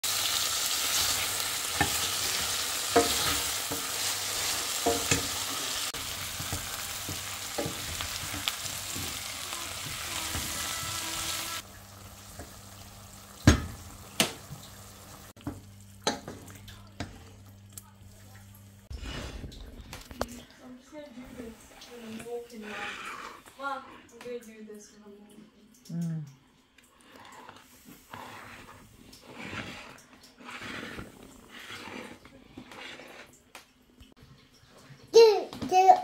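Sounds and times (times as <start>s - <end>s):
food sizzling in frying pan: 0.0s - 17.8s
wooden spatula scraping pan: 0.4s - 11.6s, 18.9s - 20.2s, 21.0s - 24.0s, 27.4s - 33.3s.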